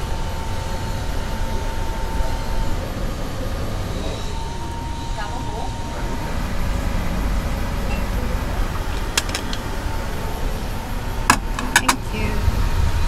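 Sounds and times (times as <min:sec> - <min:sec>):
faint steady hum: 0:00.0 - 0:13.0
low background rumble: 0:00.0 - 0:13.0
plates clinking: 0:11.3 - 0:12.1.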